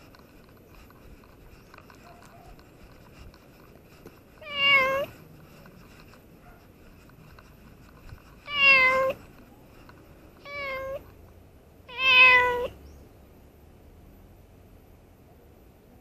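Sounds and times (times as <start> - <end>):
cat meowing: 4.4 - 5.2, 8.5 - 9.2, 10.4 - 11.0, 11.9 - 12.8.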